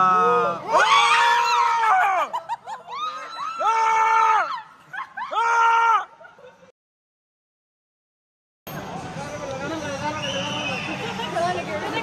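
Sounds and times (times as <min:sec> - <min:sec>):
people screaming in excitement: 0:00.0 - 0:06.2.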